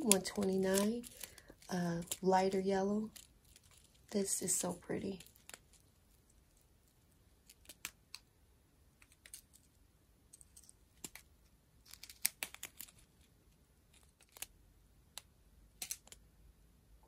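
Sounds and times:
plastic packaging crinkling: 0:00.0 - 0:08.2, 0:10.6 - 0:13.3.

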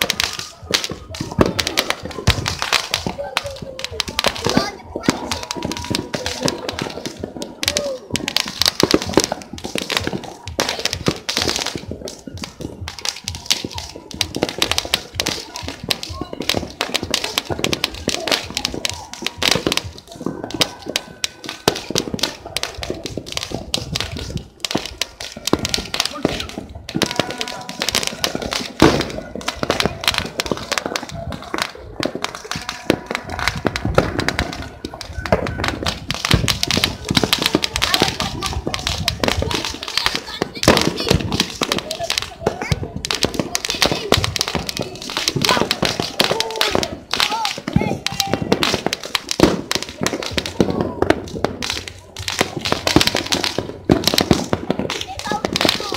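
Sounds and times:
firecrackers and fireworks banging: 0:00.0 - 0:55.9.

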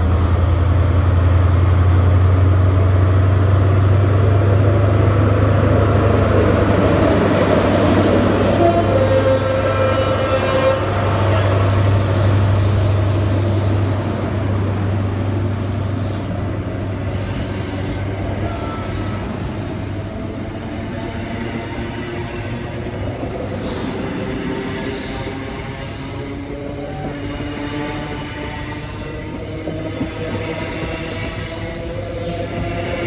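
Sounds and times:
diesel train engine hum: 0:00.0 - 0:33.0
train wheels on rails: 0:00.0 - 0:33.0
high-pitched hissing squeals: 0:11.3 - 0:14.3, 0:15.3 - 0:16.4, 0:17.0 - 0:19.5, 0:23.4 - 0:27.2, 0:28.0 - 0:32.6.

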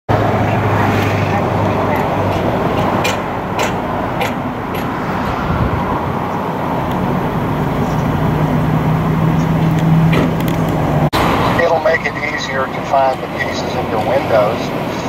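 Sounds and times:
low engine hum: 0:00.1 - 0:15.0
road traffic noise: 0:00.1 - 0:15.0.

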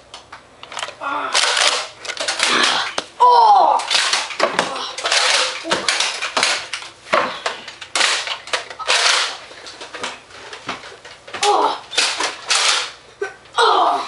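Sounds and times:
darts striking the room: 0:04.2 - 0:08.2.

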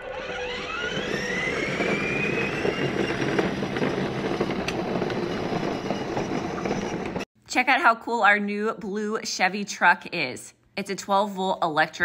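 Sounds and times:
electric motor whine: 0:00.0 - 0:07.2
toy wheels rumbling on concrete: 0:00.0 - 0:07.2.

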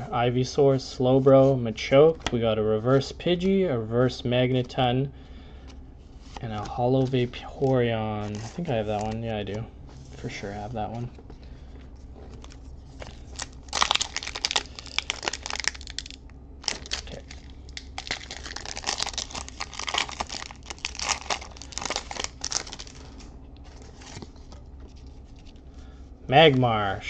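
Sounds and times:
foil wrapper crinkling and tearing: 0:12.4 - 0:24.6.

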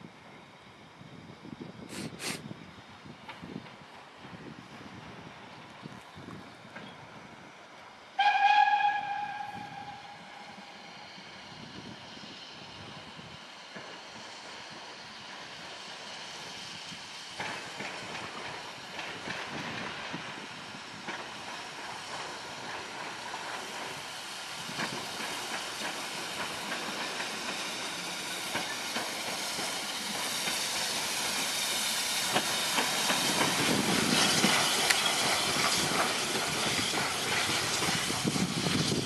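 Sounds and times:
steam locomotive hissing: 0:00.4 - 0:05.5, 0:07.2 - 0:39.0.

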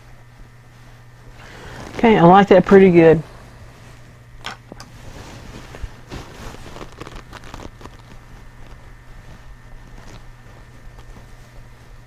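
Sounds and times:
steady low hum: 0:00.0 - 0:12.0
paintbrush strokes on canvas: 0:04.9 - 0:07.1, 0:08.1 - 0:12.0.

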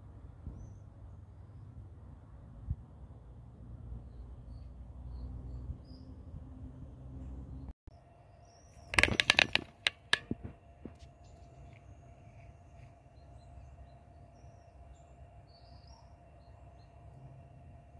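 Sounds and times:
sharp clicks and crackles: 0:08.8 - 0:11.0
faint bird chirps: 0:11.2 - 0:17.3.

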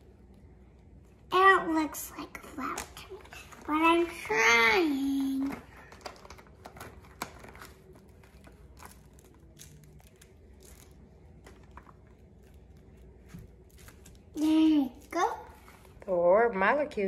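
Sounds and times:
foam beads crinkling and clicking: 0:04.9 - 0:15.4.

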